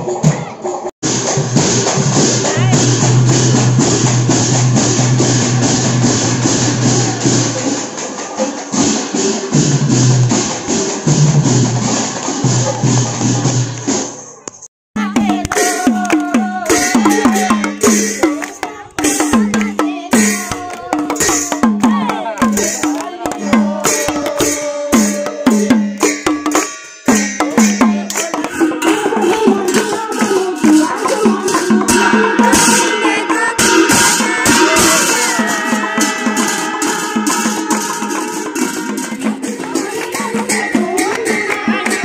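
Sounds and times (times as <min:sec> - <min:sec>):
steady percussion beat: 0:00.0 - 0:14.3, 0:15.0 - 0:42.0
brass cymbals: 0:01.0 - 0:14.4, 0:22.4 - 0:42.0
women singing a devotional chant: 0:15.0 - 0:25.6, 0:27.8 - 0:42.0
hand-clapping: 0:15.4 - 0:16.8, 0:18.2 - 0:19.8, 0:28.0 - 0:28.4, 0:39.7 - 0:42.0.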